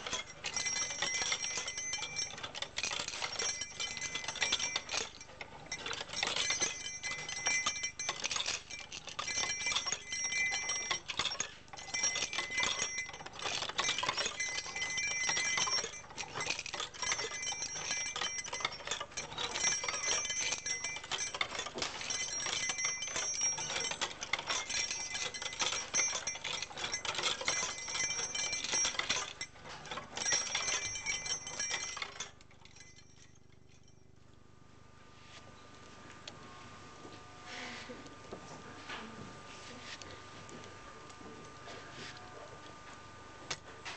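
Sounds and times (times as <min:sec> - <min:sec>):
high metallic ringing: 0:00.0 - 0:34.2.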